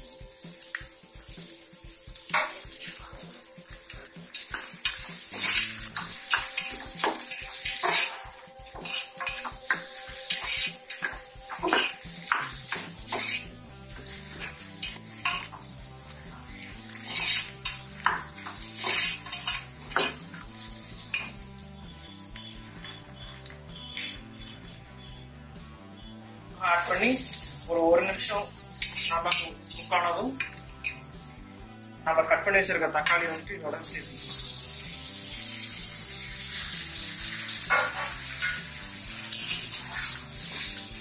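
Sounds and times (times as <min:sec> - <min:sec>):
metal spatula scraping pot: 0:04.3 - 0:15.7, 0:16.5 - 0:25.3, 0:28.3 - 0:31.2, 0:36.5 - 0:41.0.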